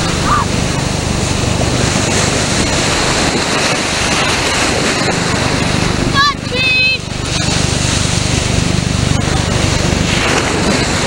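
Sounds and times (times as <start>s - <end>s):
surf washing and foaming: 0.0s - 11.0s
wind on microphone: 0.0s - 11.0s.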